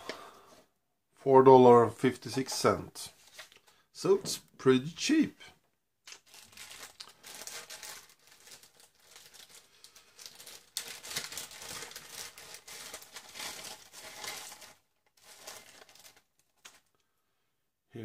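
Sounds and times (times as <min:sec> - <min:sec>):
plastic bag crinkling: 0:06.0 - 0:17.0.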